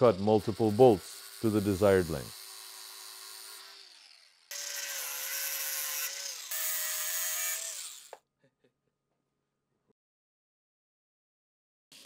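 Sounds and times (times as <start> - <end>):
angle grinder cutting steel: 0.0 - 8.2.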